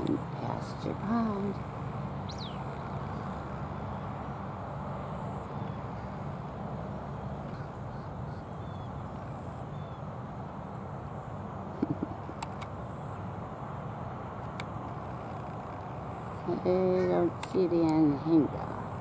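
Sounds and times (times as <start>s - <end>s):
steady low hum: 0.0s - 19.0s
faint bird chirps: 7.5s - 9.0s.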